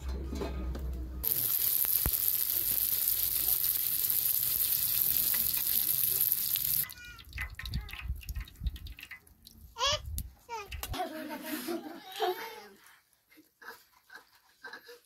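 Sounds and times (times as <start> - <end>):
pastries sizzling in hot oil: 1.2 - 7.9.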